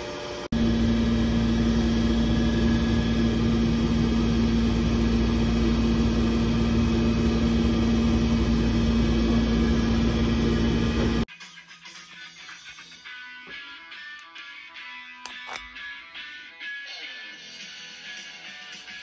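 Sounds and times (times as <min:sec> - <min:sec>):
machinery drone with low hum: 0:00.0 - 0:11.3.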